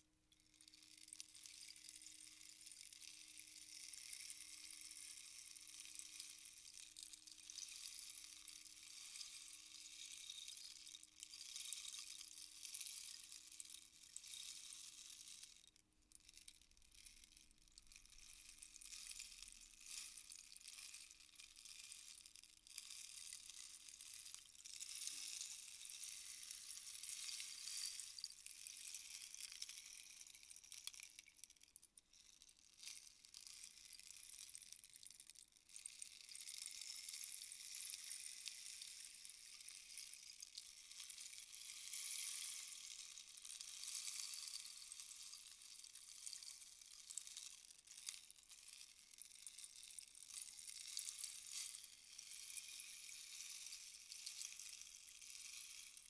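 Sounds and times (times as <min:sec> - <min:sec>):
rainstick beads trickling: 0:16.4 - 0:56.0.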